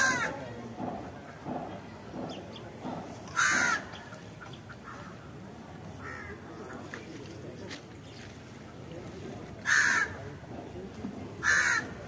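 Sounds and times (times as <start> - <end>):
bird calling: 1.2 - 5.4.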